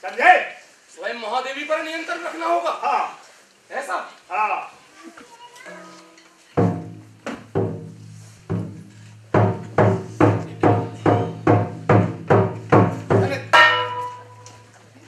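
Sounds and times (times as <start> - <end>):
drum struck in steady beat: 6.6 - 14.4.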